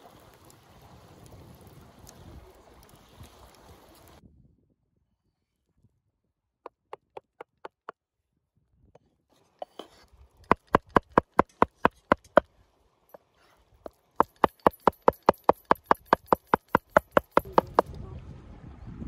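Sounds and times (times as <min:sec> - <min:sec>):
knife chopping on cutting board: 0:10.5 - 0:12.4, 0:14.2 - 0:17.8.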